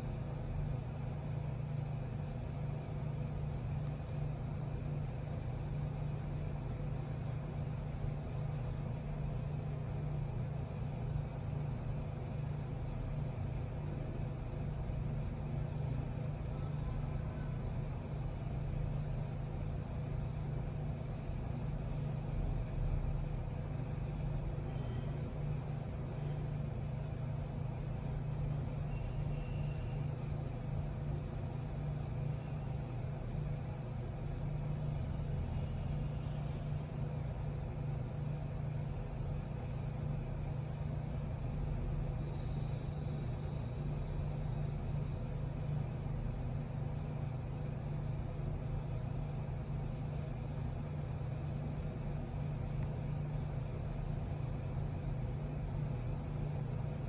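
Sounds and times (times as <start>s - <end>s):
low mechanical hum: 0.0s - 57.0s
faint higher tone: 28.9s - 30.1s.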